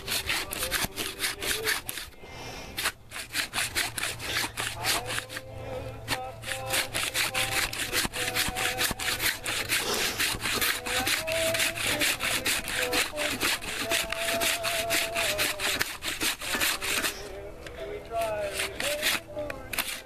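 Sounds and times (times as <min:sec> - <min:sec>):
handsaw cutting through log: 0:00.0 - 0:17.3, 0:18.1 - 0:20.0.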